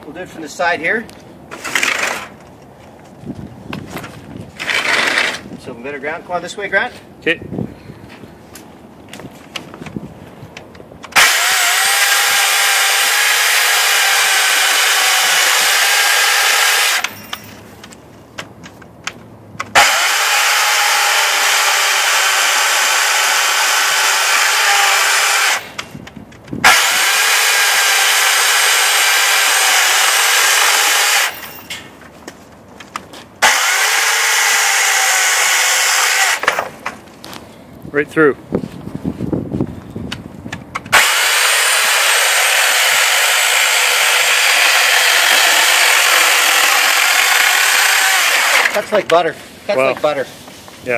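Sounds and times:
electric chainsaw cutting plastic pipe: 4.6s - 5.4s, 11.1s - 17.2s, 19.6s - 25.8s, 26.6s - 31.4s, 33.4s - 36.7s, 40.9s - 48.9s.

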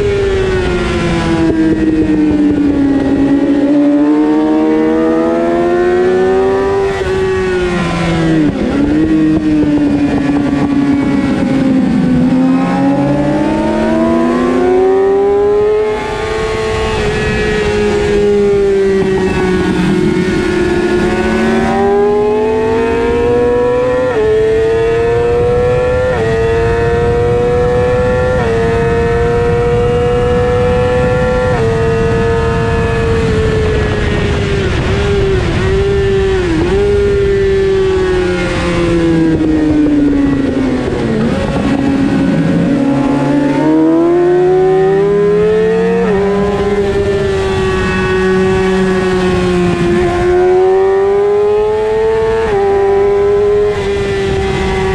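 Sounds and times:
motorcycle engine revving: 0.0s - 54.9s
wind rushing: 26.2s - 54.9s.

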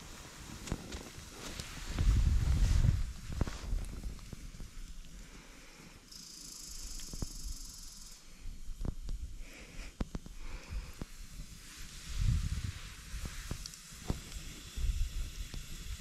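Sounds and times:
steady high hiss: 0.0s - 16.0s
wood fire crackling: 0.0s - 16.0s.

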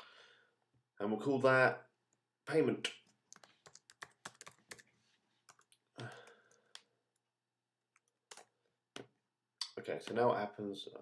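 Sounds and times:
keyboard keys clicking: 3.3s - 4.8s.

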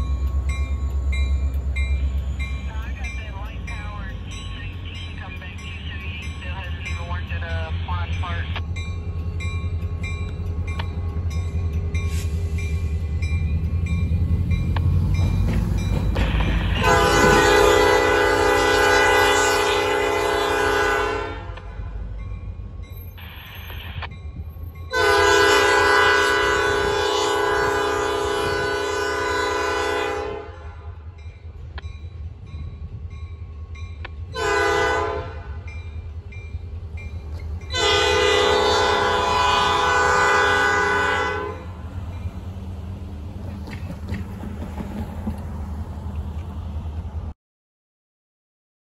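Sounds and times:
diesel engine rumble: 0.0s - 19.3s
locomotive air horn blasts: 16.6s - 21.6s, 24.9s - 31.0s, 34.4s - 35.6s, 37.7s - 41.8s.

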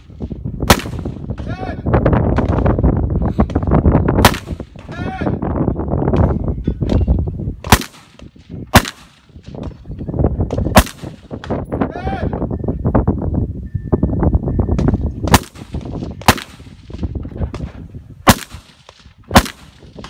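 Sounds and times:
loud gunshots: 0.6s - 1.6s, 4.2s - 4.8s, 7.6s - 9.4s, 10.6s - 11.5s, 15.3s - 17.0s, 18.2s - 20.0s.

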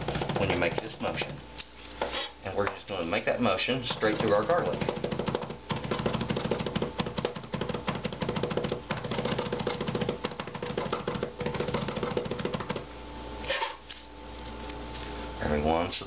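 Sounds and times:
knife tapping on cutting board: 4.0s - 12.8s.

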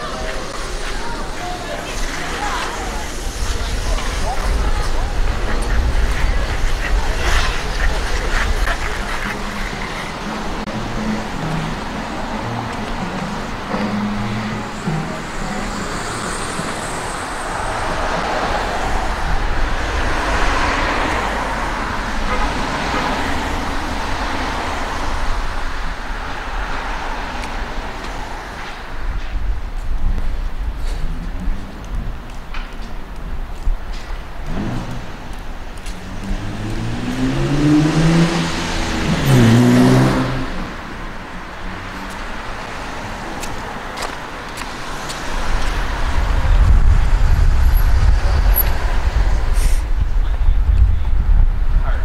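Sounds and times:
tyre hiss on wet pavement: 0.0s - 12.0s, 48.4s - 50.0s
car engine rumble: 0.0s - 52.0s
tyre noise: 0.0s - 52.0s
car accelerating past: 36.0s - 43.1s.

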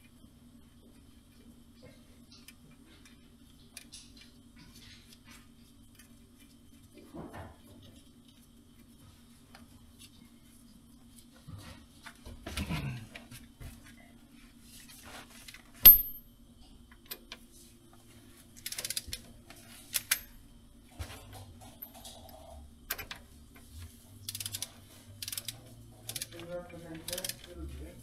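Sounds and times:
faint steady hum: 0.0s - 28.0s
metal tools clinking: 15.8s - 16.2s
sharp metal clank: 15.8s - 16.2s.

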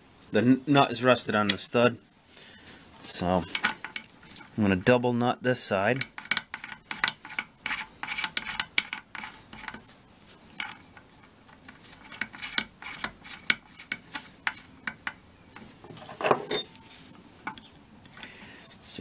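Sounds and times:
metal nuts clicking on stud: 6.0s - 9.8s.

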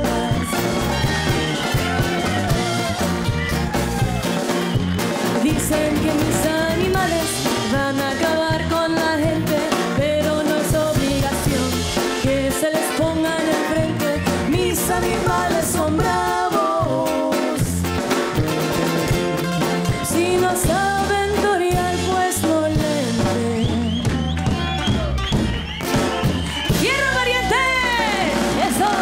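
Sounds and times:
woman singing: 0.0s - 2.1s, 5.3s - 17.9s, 19.4s - 24.3s, 26.7s - 29.0s
bass: 0.0s - 29.0s
drum kit: 0.0s - 29.0s
electric guitar: 0.0s - 29.0s
twelve-string guitar: 16.6s - 20.8s.

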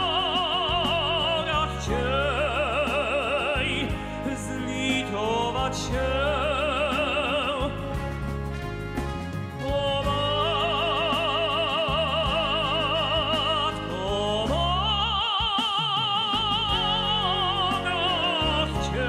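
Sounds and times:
orchestral accompaniment: 0.0s - 14.9s
operatic tenor singing: 0.0s - 19.0s.

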